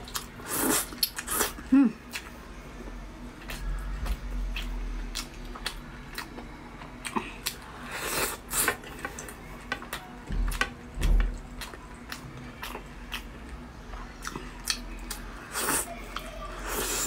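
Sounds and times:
chewing and mouth smacks: 3.4 - 7.6.

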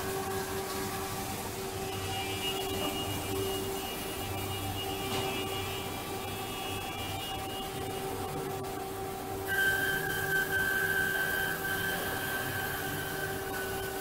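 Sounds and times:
band saw whining hum: 9.3 - 14.0.

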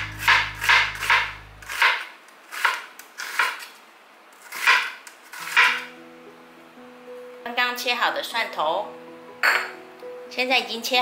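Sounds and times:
knife chopping on cutting board: 0.0 - 3.6, 4.5 - 5.9.

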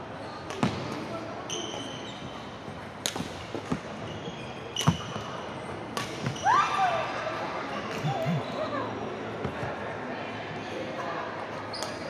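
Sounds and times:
sneakers squeaking on wooden court: 1.5 - 2.7, 3.3 - 6.6.

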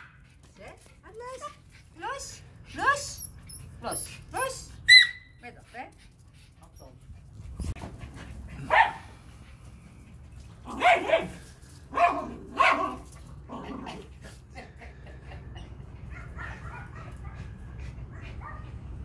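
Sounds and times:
dogs barking: 8.6 - 9.1, 10.7 - 13.1, 16.0 - 18.8.

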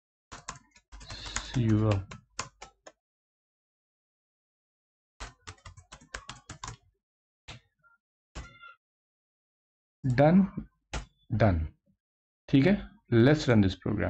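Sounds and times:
keyboard typing: 0.3 - 2.9, 5.2 - 6.8.

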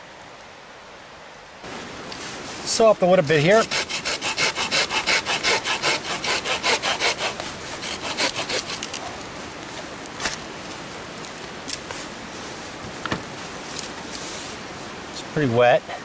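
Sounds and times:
hand saw cutting branch: 3.3 - 9.3.

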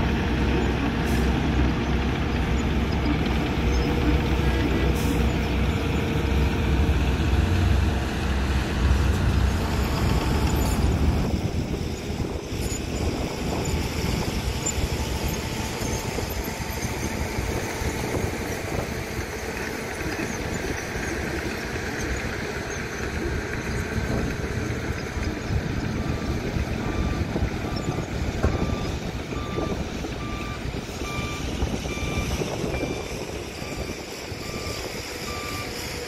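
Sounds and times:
diesel truck engines rumbling: 0.0 - 36.0
reversing alarm beeping: 25.2 - 36.0.

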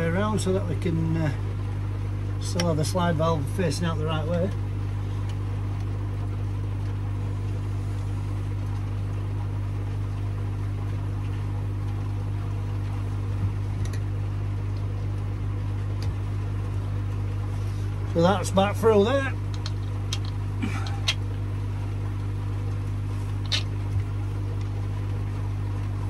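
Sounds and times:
pond filter electrical hum: 0.0 - 26.0
plastic pipe fittings clicking: 19.5 - 20.4.

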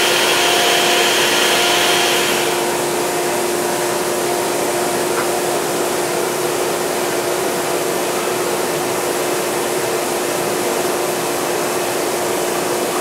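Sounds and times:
machine rushing hiss: 0.0 - 5.1.

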